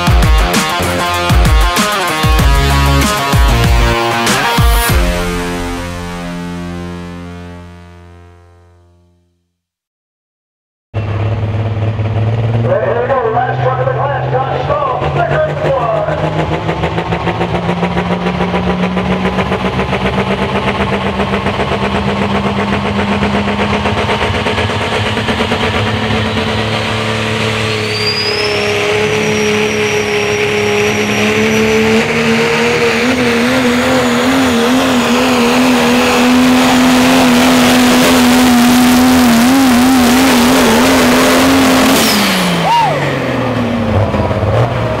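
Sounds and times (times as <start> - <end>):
diesel truck engine at full power: 0.0 - 8.7, 10.9 - 45.0
high whistle: 27.7 - 32.5, 42.0 - 43.1.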